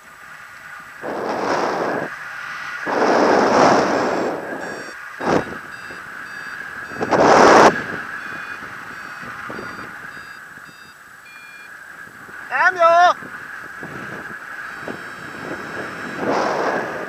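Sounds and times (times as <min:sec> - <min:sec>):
wind buffeting microphone: 0:00.9 - 0:10.9, 0:11.7 - 0:17.0
high electronic beep tone: 0:04.5 - 0:11.7.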